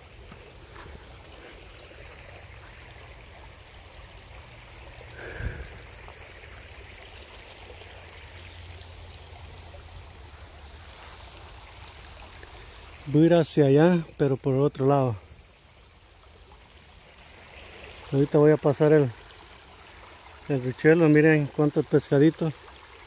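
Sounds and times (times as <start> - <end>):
creek trickling: 0.0 - 23.0.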